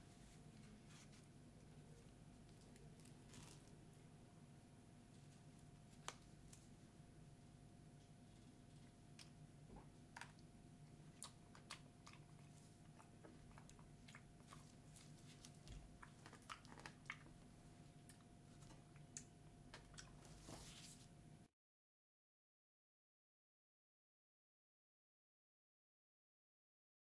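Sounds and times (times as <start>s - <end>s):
faint steady hum: 0.0s - 21.5s.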